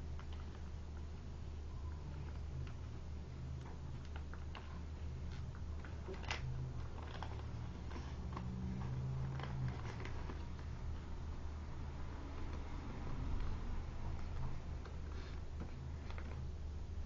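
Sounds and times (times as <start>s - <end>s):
paper being folded and creased: 4.0s - 10.8s.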